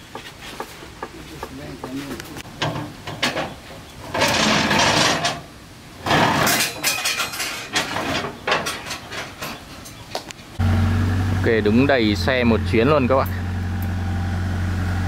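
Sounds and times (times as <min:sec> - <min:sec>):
scraping or rustling: 0:00.1 - 0:10.1
knocks and clatters of belongings: 0:06.0 - 0:10.3.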